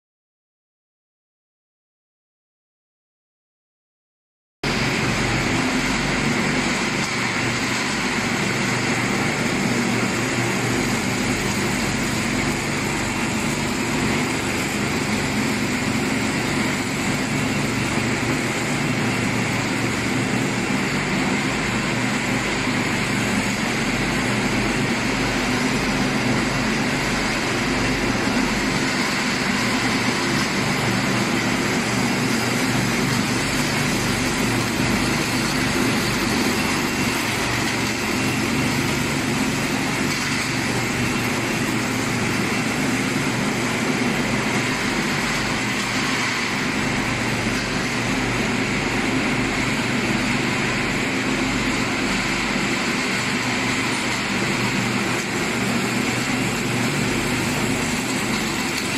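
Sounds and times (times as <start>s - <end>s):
small engines running steadily: 4.7s - 58.9s.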